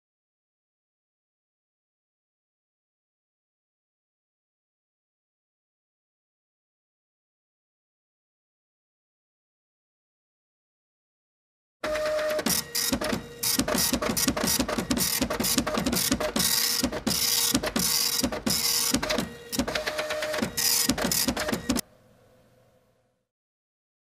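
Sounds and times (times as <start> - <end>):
printer clicking and rattling: 11.8 - 21.8
printer hum: 11.8 - 21.9.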